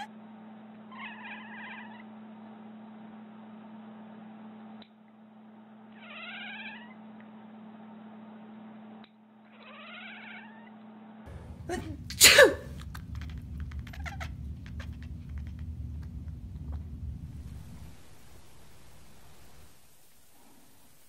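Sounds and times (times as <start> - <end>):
cat meowing: 0.9 - 2.1, 6.0 - 7.0, 9.5 - 10.8, 13.6 - 15.0
cat sneezing: 11.5 - 13.0.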